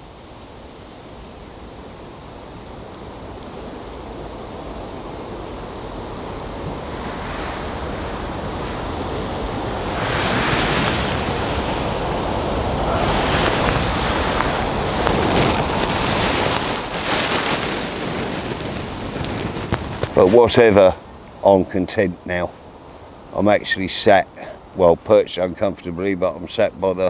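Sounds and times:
wind gusting on microphone: 0.0s - 27.0s
wind through reeds and trees: 0.0s - 27.0s.

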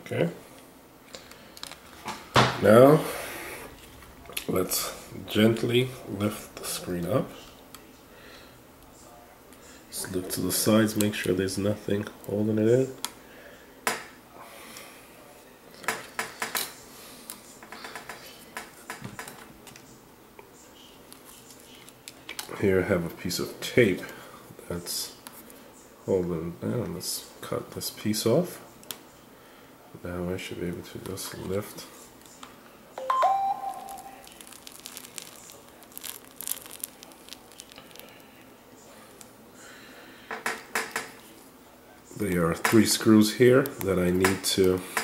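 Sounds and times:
short ringing tone: 33.0s - 34.2s
adhesive crackling and tearing: 33.8s - 38.4s
small clicks and crackles: 33.8s - 39.3s.

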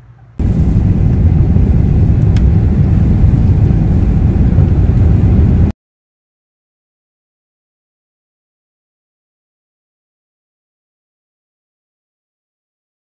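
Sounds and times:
jet airliner cabin roar: 0.0s - 5.7s.

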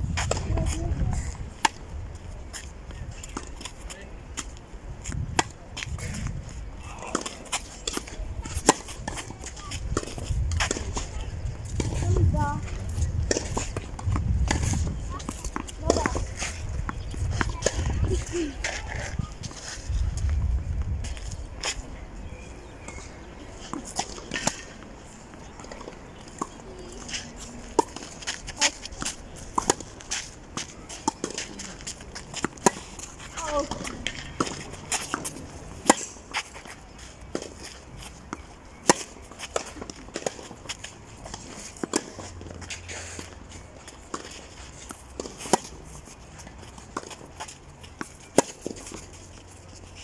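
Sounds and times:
tennis ball struck by rackets: 13.2s - 18.0s, 25.6s - 30.0s, 30.6s - 36.5s, 38.3s - 40.6s, 44.9s - 45.9s, 48.0s - 49.1s
shoes scuffing on clay: 22.8s - 50.0s.

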